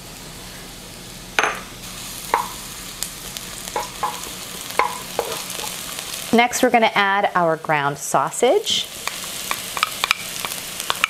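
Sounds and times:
garlic sizzling in oil: 0.0 - 11.0
wooden spoon knocking on pan: 2.3 - 2.6, 3.7 - 5.4.

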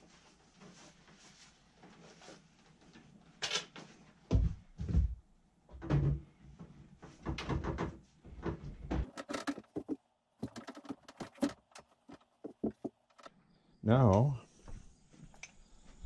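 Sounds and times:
air conditioner casing thumps and scrapes: 5.8 - 13.3.

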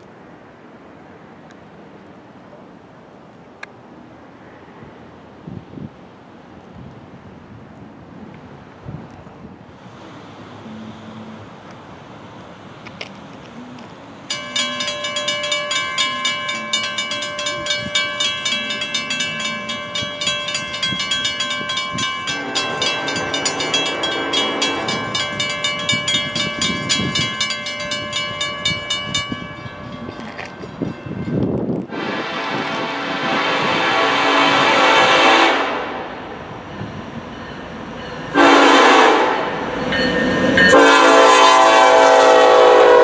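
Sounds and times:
crossing bells ringing: 13.6 - 32.2, 35.9 - 43.0
locomotive horn: 31.8 - 36.2, 38.3 - 43.0.

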